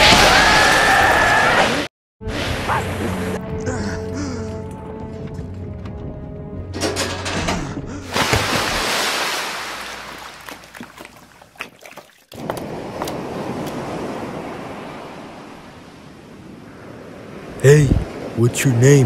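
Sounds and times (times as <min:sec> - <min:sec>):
crashing waves: 0:00.0 - 0:03.4, 0:08.1 - 0:19.0
rushing water: 0:08.0 - 0:19.0.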